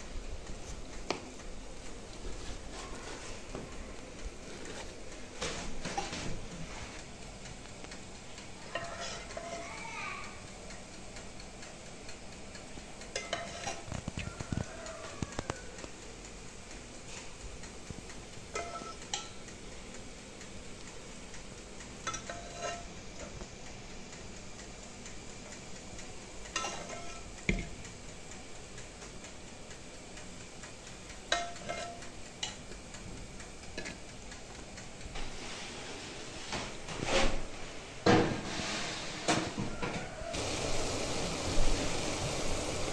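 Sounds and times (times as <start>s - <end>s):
faint steady hiss: 0.0s - 42.9s
metal spoon clinking on metal tray: 8.7s - 9.6s, 13.1s - 13.9s, 18.5s - 19.4s, 22.0s - 22.9s, 26.6s - 27.7s, 31.3s - 32.6s.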